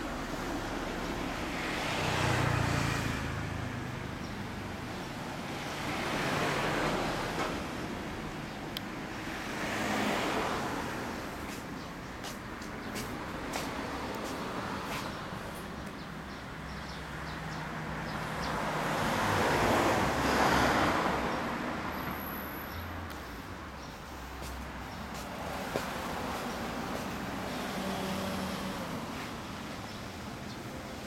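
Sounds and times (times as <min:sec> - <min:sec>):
vehicle passing: 0:00.0 - 0:04.9.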